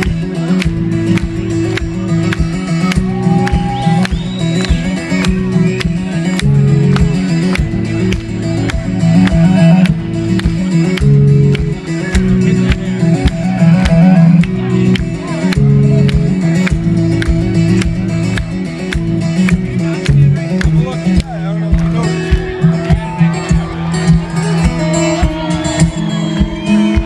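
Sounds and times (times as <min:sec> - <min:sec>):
acoustic guitar fingerpicking: 0:00.0 - 0:27.0.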